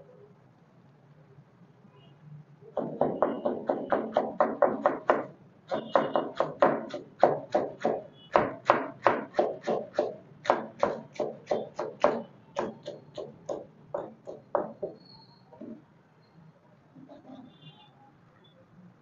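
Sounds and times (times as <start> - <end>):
knife chopping on plastic board: 2.8 - 14.9.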